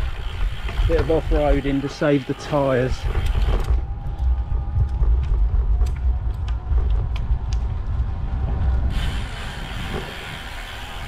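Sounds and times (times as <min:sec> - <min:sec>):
bike rumbling over rough road: 0:00.0 - 0:11.0
tyre hiss on smooth road: 0:08.9 - 0:11.0.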